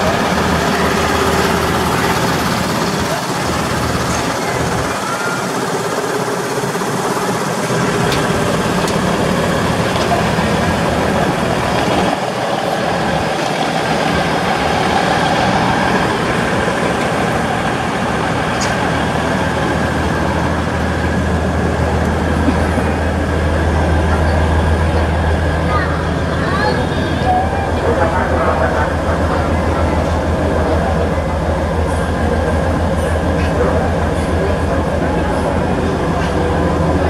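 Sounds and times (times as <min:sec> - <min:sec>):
diesel engine droning: 0:00.0 - 0:37.0.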